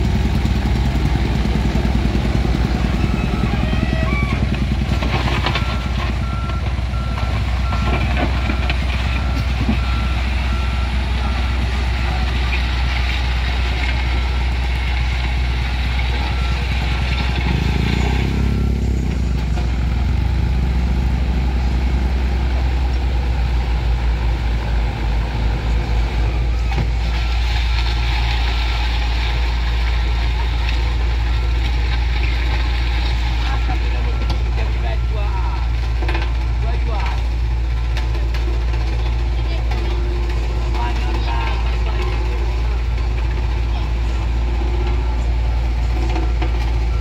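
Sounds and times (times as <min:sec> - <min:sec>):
diesel engine running: 0:00.0 - 0:47.0
reversing alarm beeping: 0:02.3 - 0:04.5.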